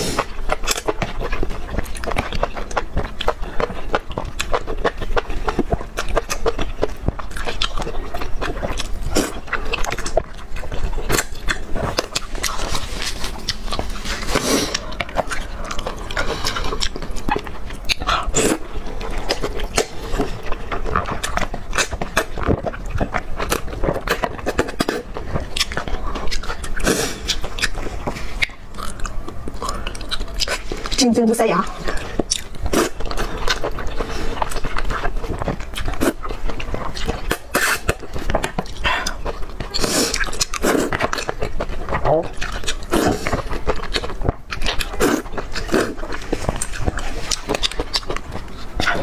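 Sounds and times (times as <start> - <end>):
slurping noodles: 0.0 - 0.3, 11.1 - 17.0, 18.0 - 20.4, 26.8 - 27.4, 37.3 - 38.0, 38.7 - 41.0, 42.8 - 43.5, 44.8 - 47.6
wet chewing: 0.0 - 49.0.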